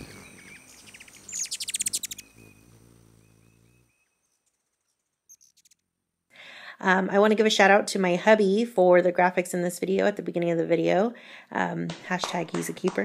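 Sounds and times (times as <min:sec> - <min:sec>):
bird chirping trill: 0:00.0 - 0:05.9.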